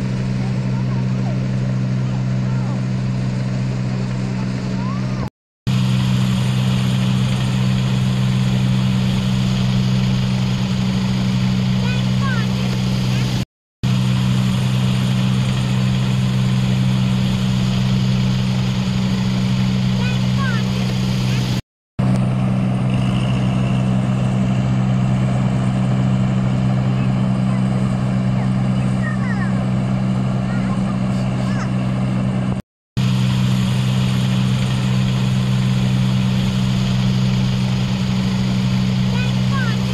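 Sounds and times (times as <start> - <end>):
diesel engines droning: 0.0 - 39.9.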